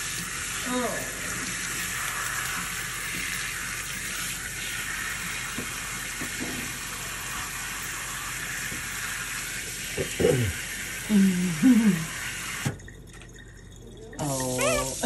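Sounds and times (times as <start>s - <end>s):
faucet spray running into sink: 0.0s - 12.9s, 14.0s - 15.0s.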